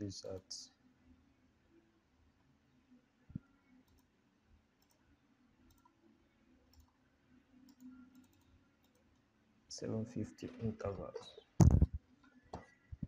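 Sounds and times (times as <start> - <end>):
faint computer mouse clicks: 4.8 - 5.0, 7.7 - 9.1.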